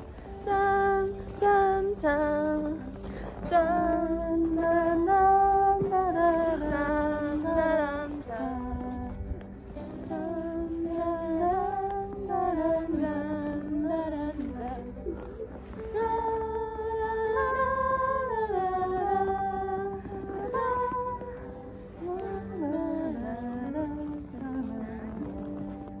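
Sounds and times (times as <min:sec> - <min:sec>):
background music with low note: 0:00.0 - 0:26.0.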